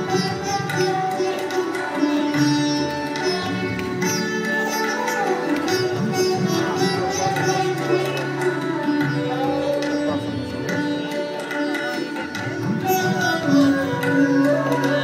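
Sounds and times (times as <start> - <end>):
hand drums: 0.0 - 15.0
plucked strings: 0.0 - 15.0.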